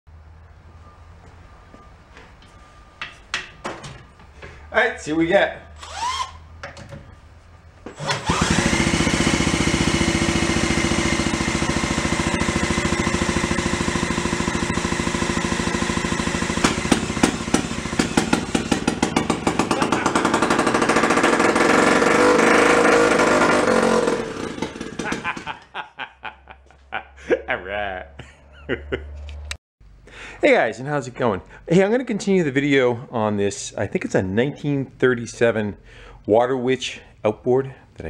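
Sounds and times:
electric drill spinning: 0:05.8 - 0:06.5, 0:08.0 - 0:25.4
outboard motor running: 0:08.1 - 0:25.3
engine sharp pops: 0:16.4 - 0:22.4.

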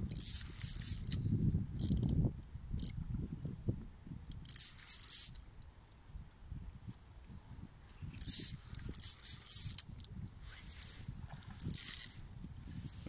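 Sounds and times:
fishing reel drag buzzing: 0:00.0 - 0:01.2, 0:01.8 - 0:02.2, 0:02.8 - 0:03.0, 0:04.3 - 0:05.7, 0:08.1 - 0:12.3
wind rumble on microphone: 0:00.0 - 0:04.9, 0:05.5 - 0:13.0.

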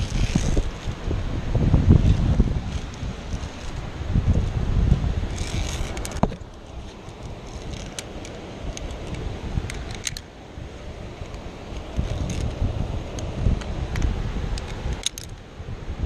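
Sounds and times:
wind buffeting microphone: 0:00.0 - 0:16.0
metallic clinks of carabiners: 0:05.3 - 0:06.2, 0:14.6 - 0:15.4.

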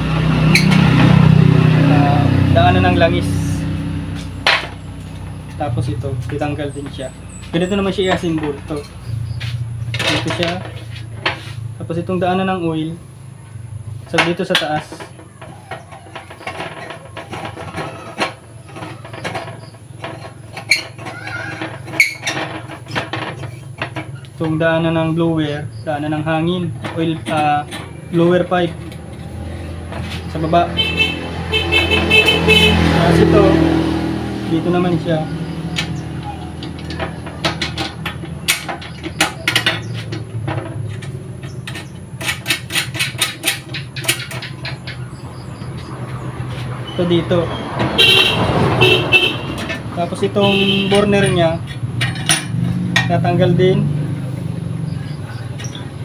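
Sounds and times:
steel parts clinking together: 0:06.2 - 0:11.4, 0:35.1 - 0:45.0, 0:49.6 - 0:53.1
metal pipe clicks and knocks: 0:35.7 - 0:45.0.

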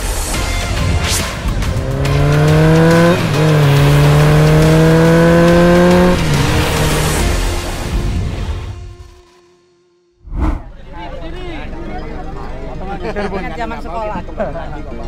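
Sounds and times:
background music: 0:00.0 - 0:09.8
motorcycle engine accelerating: 0:01.4 - 0:08.9
whoosh: 0:10.2 - 0:10.8.

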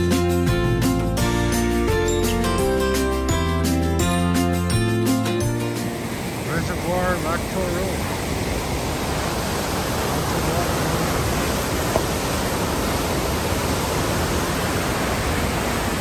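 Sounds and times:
whitewater rushing: 0:05.1 - 0:16.0.

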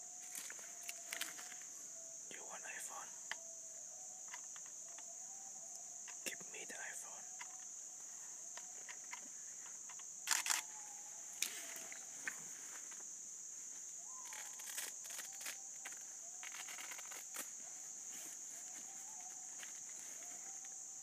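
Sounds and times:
insects droning: 0:00.0 - 0:21.0
sharp clicks and rustles: 0:08.5 - 0:10.7, 0:14.2 - 0:17.6.

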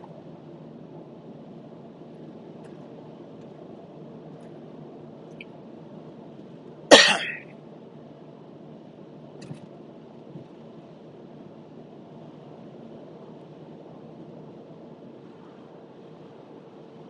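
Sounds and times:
person coughing: 0:06.9 - 0:07.4.

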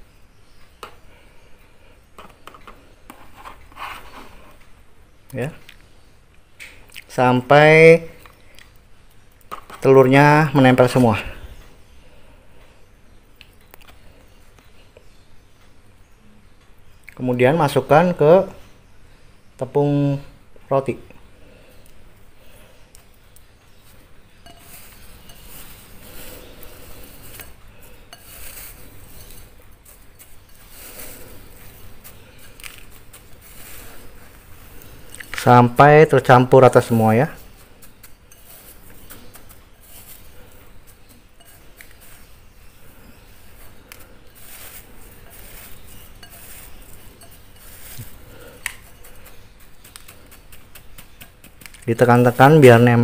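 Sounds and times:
breadcrumbs rustling and crunching: 0:23.3 - 0:53.0
tongs clinking against glass: 0:24.4 - 0:26.2, 0:28.1 - 0:29.5, 0:41.4 - 0:42.1, 0:44.4 - 0:49.3.

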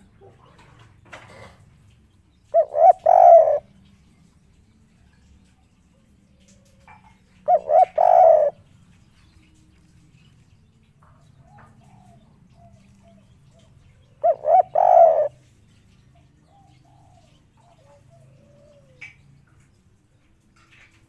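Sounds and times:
dove cooing: 0:02.5 - 0:03.8, 0:05.9 - 0:08.7, 0:11.4 - 0:15.5, 0:16.4 - 0:19.2.

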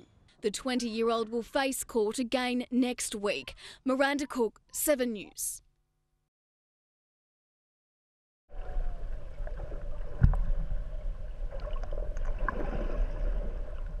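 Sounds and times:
water noise: 0:08.5 - 0:14.0.

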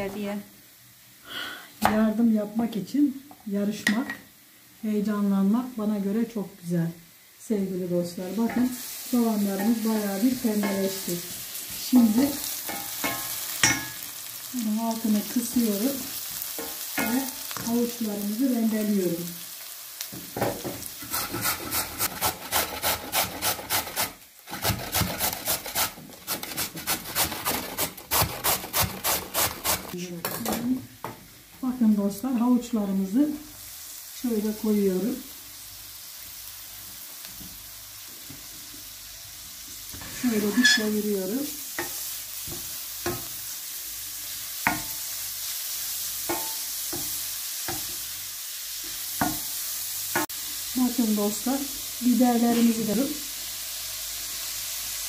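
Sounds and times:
vegetables sizzling in oil: 0:00.0 - 0:55.0
carrot grating: 0:21.1 - 0:29.9.

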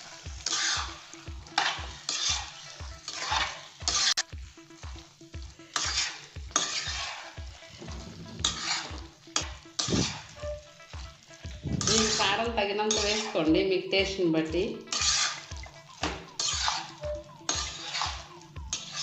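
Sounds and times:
spatula scraping a pan: 0:00.0 - 0:05.0, 0:05.6 - 0:13.5, 0:14.8 - 0:19.0
food sizzling: 0:00.0 - 0:19.0
faint low beat: 0:10.0 - 0:12.7.

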